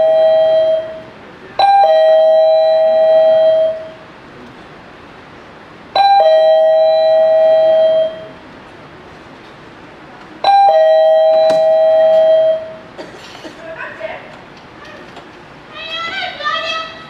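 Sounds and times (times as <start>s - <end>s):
two-note doorbell chime: 1.6s - 3.9s, 6.0s - 8.3s, 10.4s - 12.8s.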